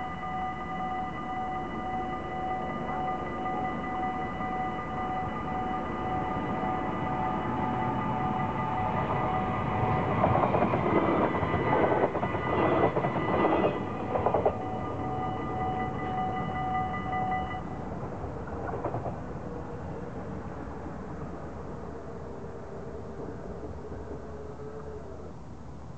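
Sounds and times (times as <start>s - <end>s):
level crossing bells ringing: 0.0s - 17.8s
train wheels clattering on rails: 6.7s - 21.5s.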